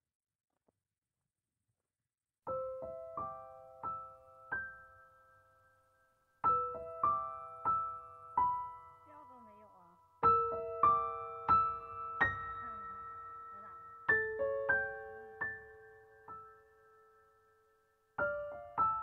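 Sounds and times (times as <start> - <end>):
soft solo piano: 2.5 - 9.1, 10.2 - 19.0.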